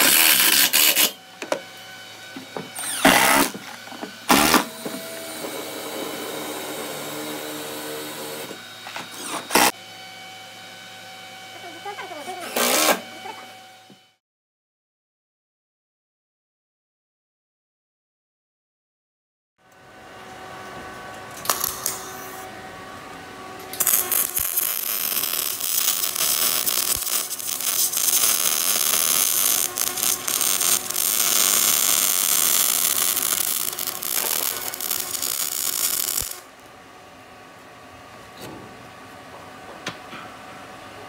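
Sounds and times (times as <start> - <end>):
arc welder crackling: 0.0 - 1.2, 2.8 - 3.7, 21.3 - 22.5, 23.6 - 36.7.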